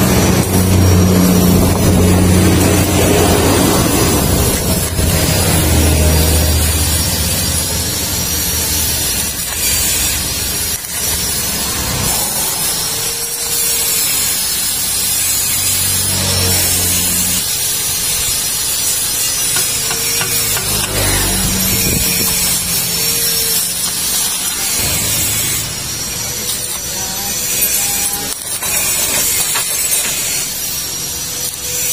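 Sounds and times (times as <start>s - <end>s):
welding arc crackling and hissing: 0.0s - 31.9s.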